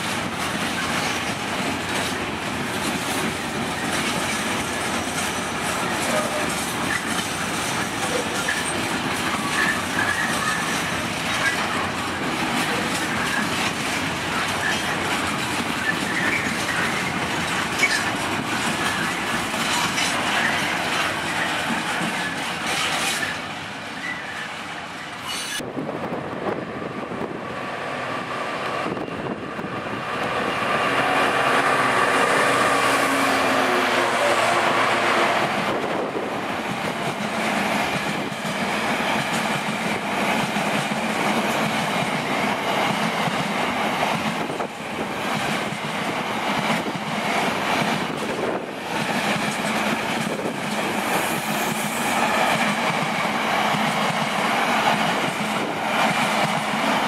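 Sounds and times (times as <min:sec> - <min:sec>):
wheels clattering over rail joints: 0:00.0 - 0:24.3.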